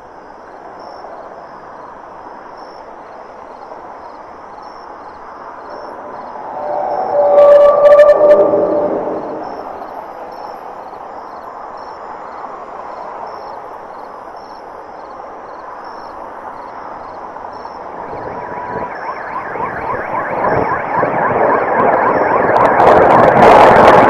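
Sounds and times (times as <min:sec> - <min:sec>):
faint high beeps: 0:05.7 - 0:10.6
siren-like chirping strokes: 0:05.8 - 0:10.5, 0:18.1 - 0:23.6
loud rush: 0:05.9 - 0:10.1.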